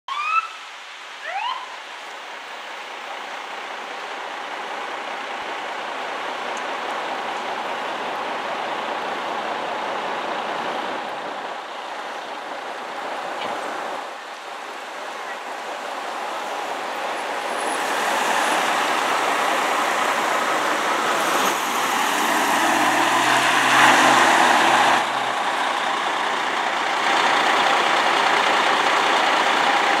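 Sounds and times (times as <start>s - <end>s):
siren chirp: 0.1s - 0.6s, 1.2s - 1.8s
fire apparatus running: 3.3s - 30.0s
vehicle passing: 17.0s - 28.8s.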